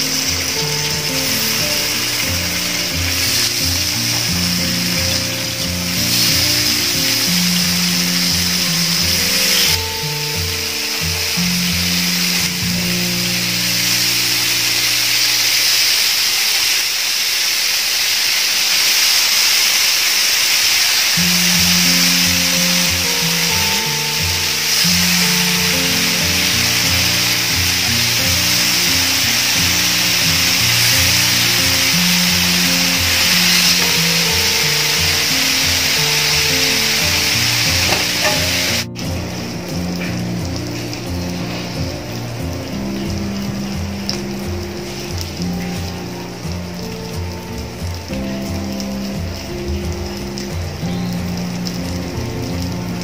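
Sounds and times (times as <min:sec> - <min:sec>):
background music with low notes: 0:00.0 - 0:16.0, 0:21.1 - 0:53.0
fish sizzling in oil: 0:00.0 - 0:53.0.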